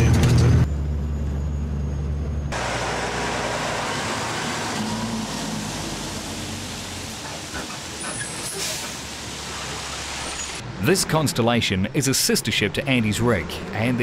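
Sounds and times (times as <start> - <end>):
low diesel drone inside vehicle: 0.0 - 8.6
heavy tyre noise on road: 0.0 - 14.0
log truck passing: 0.7 - 14.0.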